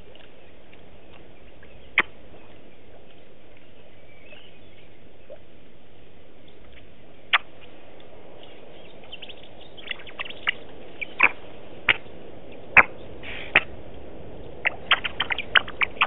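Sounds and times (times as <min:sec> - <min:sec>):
steady background hiss: 0:00.0 - 0:16.0
bird short sharp calls: 0:09.1 - 0:13.8.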